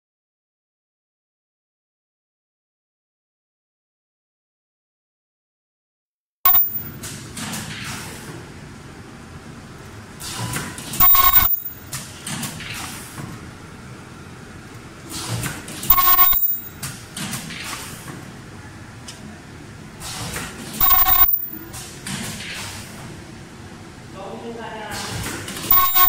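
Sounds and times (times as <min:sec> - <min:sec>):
steady machine hum: 0:06.5 - 0:07.0, 0:11.0 - 0:11.9, 0:15.7 - 0:17.2, 0:20.8 - 0:21.7, 0:25.7 - 0:26.0
loud machine burst with tone: 0:11.0 - 0:11.8, 0:15.9 - 0:16.8, 0:20.8 - 0:21.7, 0:25.7 - 0:26.0.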